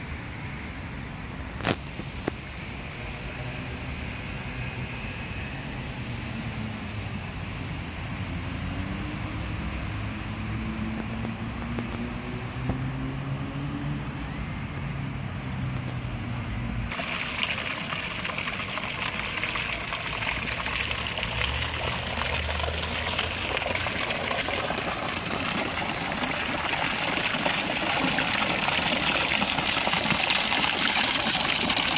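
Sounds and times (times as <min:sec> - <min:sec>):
fountain water splashing into basin: 0:16.9 - 0:31.9.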